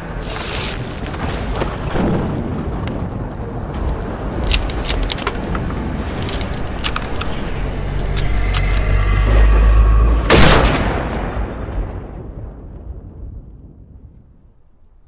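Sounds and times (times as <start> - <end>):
steady low rumble: 0.0 - 15.0
sharp clicks: 3.8 - 9.0.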